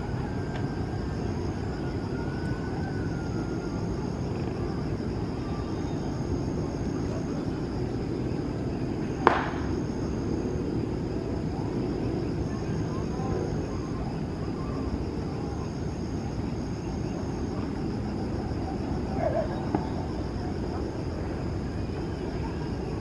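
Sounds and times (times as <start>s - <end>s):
distant jet engines rumbling: 0.0s - 23.0s.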